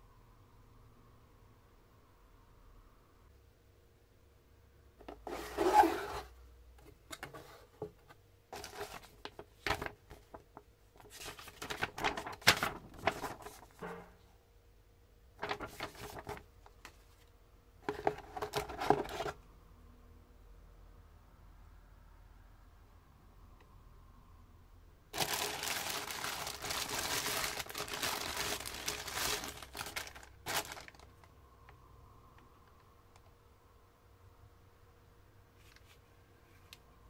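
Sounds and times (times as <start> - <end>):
cardboard box rubbing and scraping: 5.2 - 6.3.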